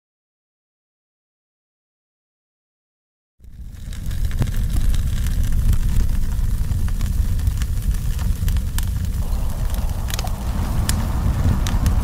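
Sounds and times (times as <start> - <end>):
wood fire crackling: 3.4 - 12.0.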